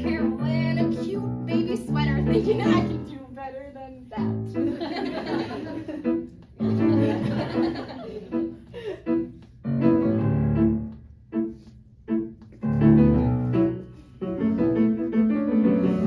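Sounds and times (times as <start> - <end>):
grand piano chords: 0.0 - 16.0.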